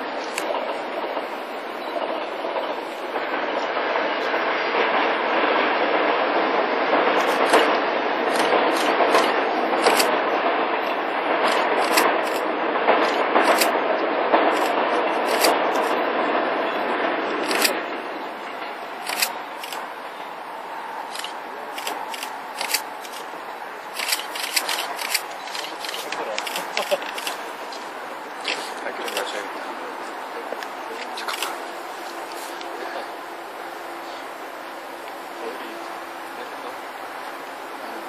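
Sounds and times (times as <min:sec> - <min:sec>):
train wheel and track noise: 0:00.0 - 0:38.0
sharp clicks and scrapes: 0:07.2 - 0:10.1, 0:11.4 - 0:12.4, 0:13.0 - 0:13.7, 0:14.5 - 0:16.0, 0:17.4 - 0:17.8, 0:21.1 - 0:23.3, 0:24.0 - 0:29.3.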